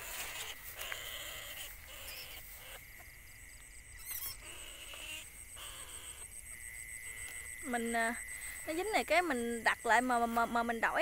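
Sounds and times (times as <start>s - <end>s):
animal squeal: 0.0s - 2.8s, 4.0s - 6.2s.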